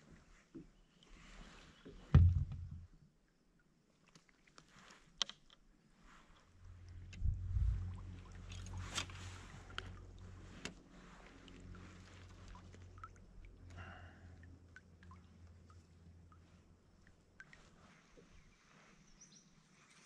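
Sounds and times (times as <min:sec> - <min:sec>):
low rumble: 0:02.2 - 0:02.9, 0:06.6 - 0:12.6.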